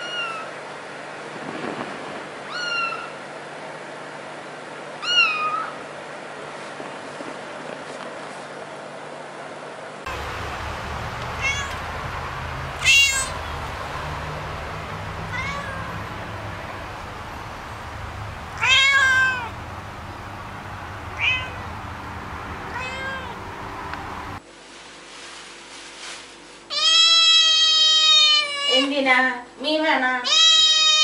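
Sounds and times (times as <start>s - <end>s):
cat meowing: 0.0s - 0.5s, 2.5s - 3.2s, 5.0s - 5.8s, 11.0s - 16.9s, 17.6s - 19.6s, 21.0s - 21.8s, 22.6s - 23.7s, 26.7s - 28.9s, 30.2s - 31.0s
steady background hum: 0.0s - 31.0s.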